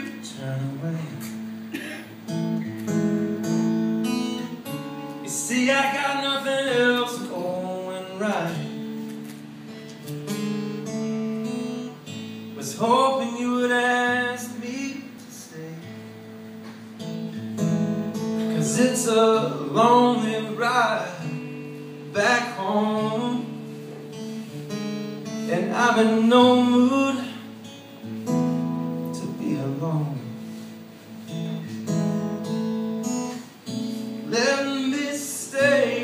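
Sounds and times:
man singing: 0.0s - 1.5s, 5.1s - 9.0s, 12.4s - 16.1s, 18.4s - 23.7s, 25.3s - 27.6s, 29.0s - 30.4s, 34.2s - 36.0s
strummed acoustic guitar: 0.0s - 36.0s.

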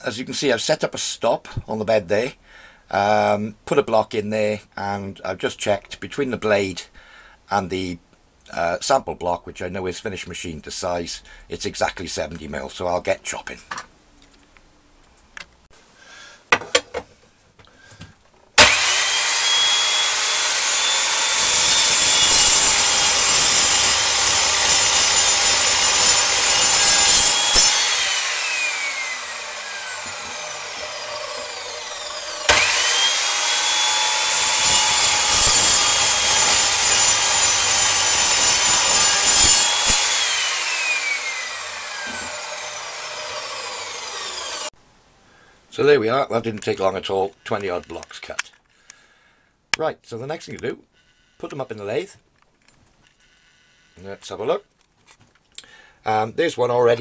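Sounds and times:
chop saw cutting metal bar: 18.6s - 44.7s
saw motor winding down whine: 18.6s - 44.7s.

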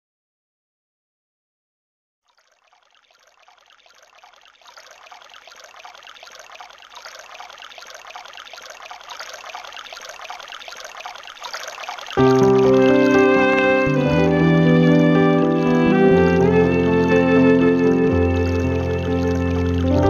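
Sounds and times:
trickling running water: 2.3s - 20.0s
piano and violin music: 12.2s - 20.0s.

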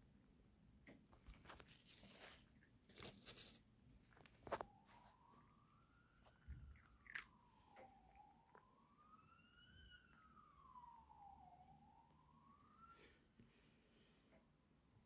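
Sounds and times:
distant emergency siren wailing: 4.1s - 15.0s
cat crunching dry treats: 6.4s - 7.4s.

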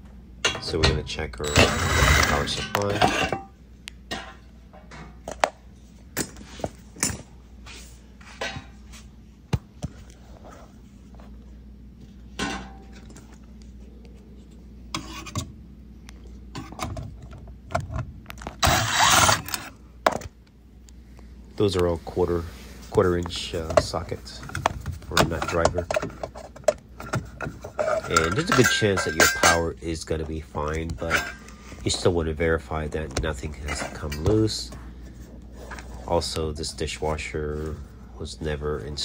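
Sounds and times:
metal panel scraping: 1.4s - 3.5s, 18.6s - 19.7s.

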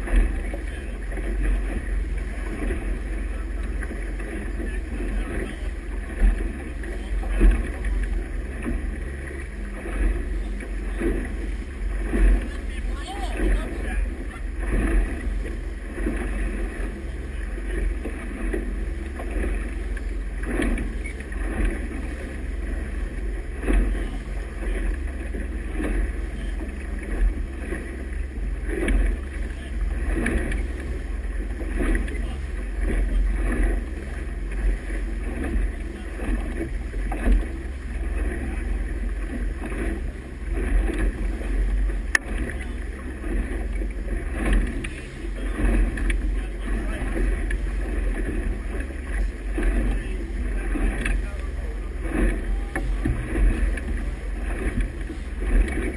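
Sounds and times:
churning wake rushing: 0.0s - 55.9s
motorboat engine rumble: 0.0s - 55.9s.

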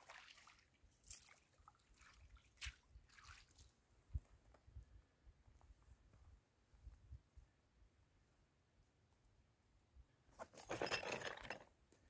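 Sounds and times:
water splashing and dripping: 0.0s - 3.8s.

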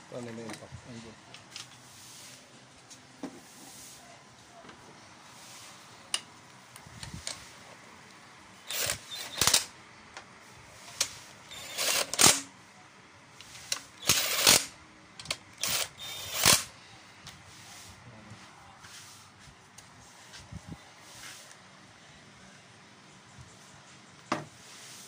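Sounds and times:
ratchet wrench clicking: 8.7s - 9.7s, 13.7s - 16.7s.

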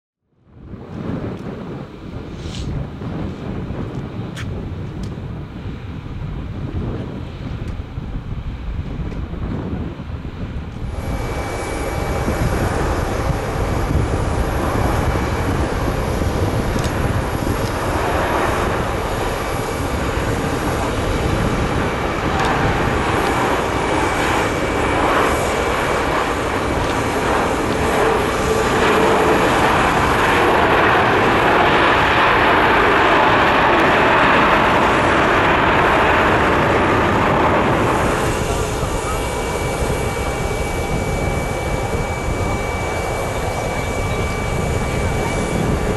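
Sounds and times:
jet engine rush with whistle: 0.4s - 45.9s.

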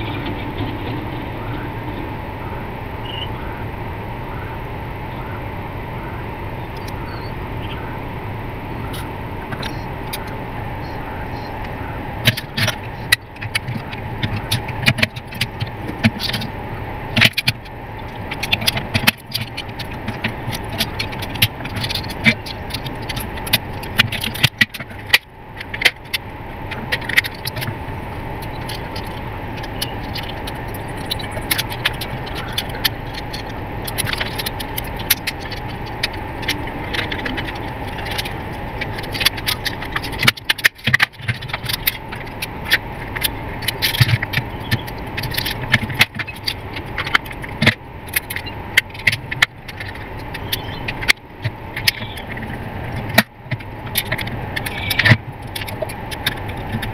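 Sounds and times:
steady background hum: 0.0s - 56.9s.

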